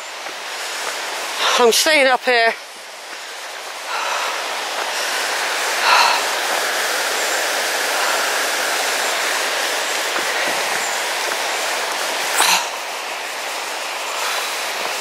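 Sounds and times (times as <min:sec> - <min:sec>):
river rushing over rocks: 0:00.0 - 0:15.0.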